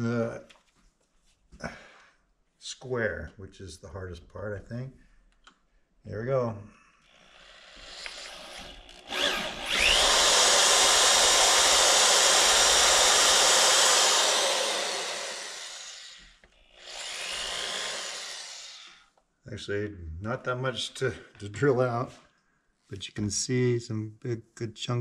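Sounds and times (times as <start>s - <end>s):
electric drill whining: 7.1s - 19.1s.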